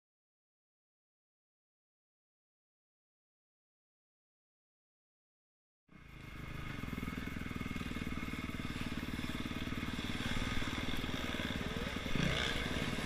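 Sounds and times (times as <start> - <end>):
dirt bike engine running: 5.9 - 13.0.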